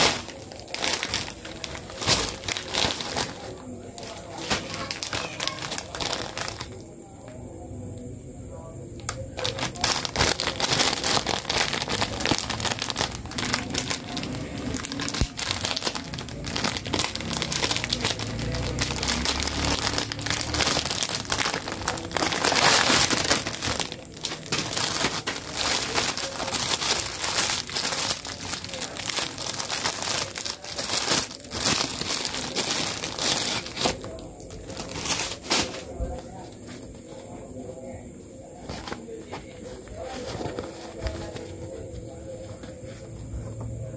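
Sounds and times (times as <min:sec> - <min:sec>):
plastic pouch crinkling: 0:00.0 - 0:06.8, 0:09.1 - 0:36.0.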